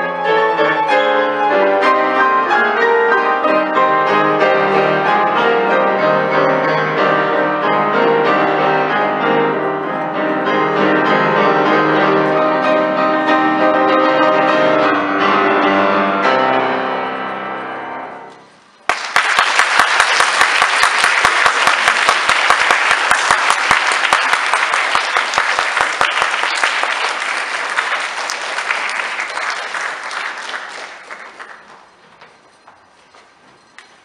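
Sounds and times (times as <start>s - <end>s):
audience applauding: 18.8s - 32.5s.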